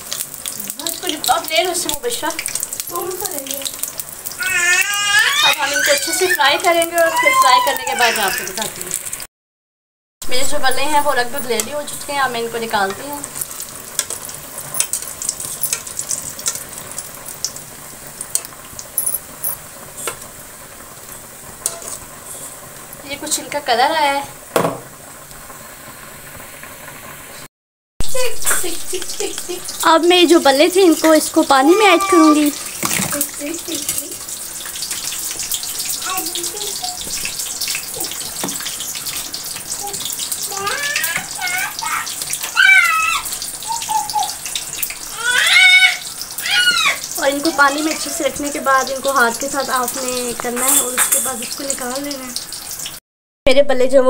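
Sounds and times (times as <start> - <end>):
fritters sizzling in hot oil: 0.0 - 9.3, 10.2 - 53.0
water rushing and splashing: 28.0 - 53.0.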